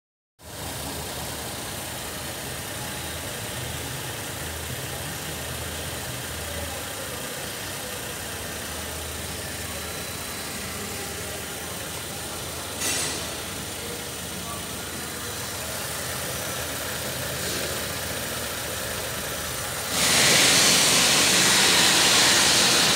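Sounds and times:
car engine idling: 0.4 - 22.9.

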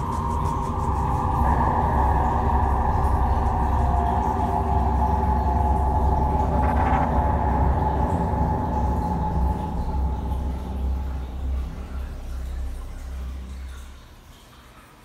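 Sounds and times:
steady high tones: 0.0 - 14.2
aquarium pump humming: 0.0 - 14.4.

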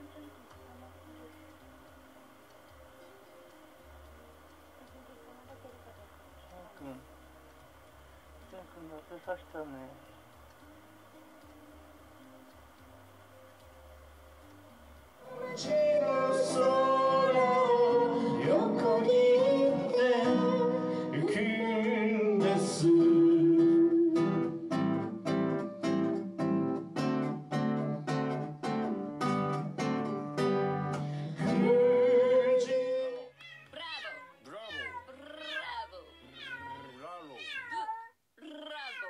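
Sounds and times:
man singing: 15.3 - 24.4, 31.4 - 33.4
cat meowing: 33.2 - 39.0.

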